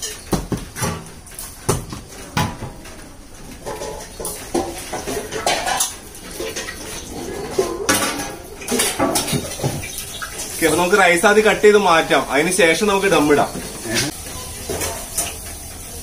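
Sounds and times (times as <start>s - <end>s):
metal pots clattering: 0.0s - 16.0s
voices: 10.3s - 14.2s.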